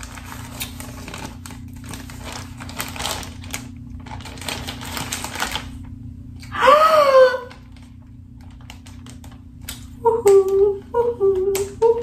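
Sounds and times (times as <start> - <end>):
tissue paper crinkling: 0.0 - 6.0, 7.5 - 9.7.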